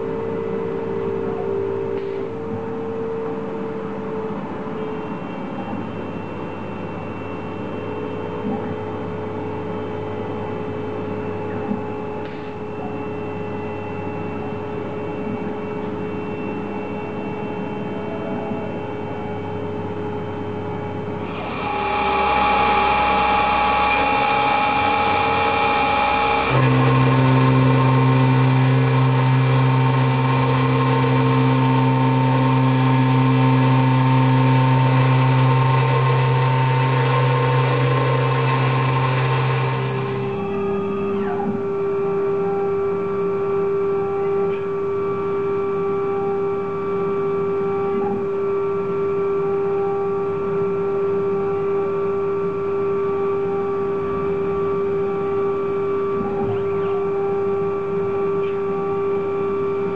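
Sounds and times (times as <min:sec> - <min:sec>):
milling machine spindle whine: 0:00.0 - 0:59.9.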